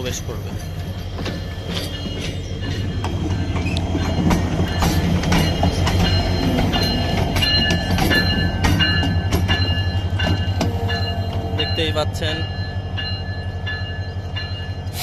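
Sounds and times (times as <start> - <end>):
wheels clicking over rail joints: 0.0 - 11.8
locomotive engine drone: 0.0 - 15.0.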